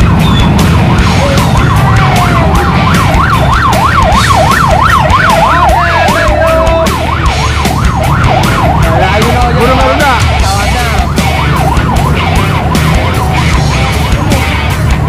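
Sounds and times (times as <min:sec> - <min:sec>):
electronic yelp siren: 0:00.0 - 0:15.0.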